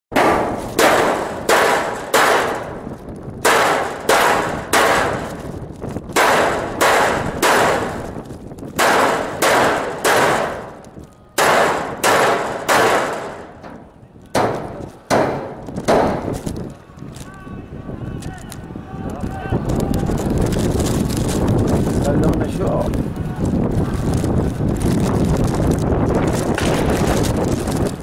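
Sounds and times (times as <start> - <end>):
gunshots echoing: 0.2 - 2.8, 3.4 - 5.4, 6.2 - 8.1, 8.8 - 10.8, 11.4 - 13.8, 14.4 - 16.4, 26.5 - 27.4.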